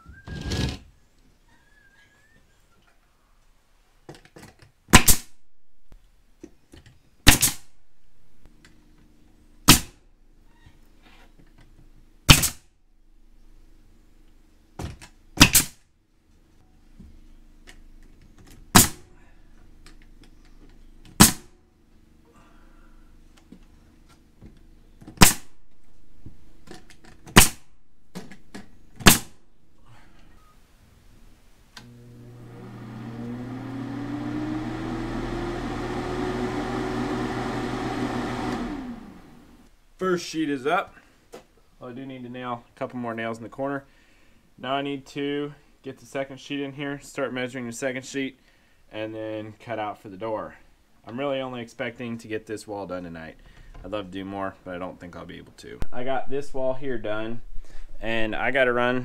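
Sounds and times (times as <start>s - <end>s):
nail gun firing: 5.0s - 5.3s, 7.3s - 7.6s, 9.7s - 10.0s, 12.3s - 12.6s, 15.4s - 15.8s, 18.7s - 19.0s, 21.2s - 21.6s, 25.2s - 25.5s, 27.2s - 27.6s, 29.0s - 29.4s
low steady hum: 5.4s - 47.9s.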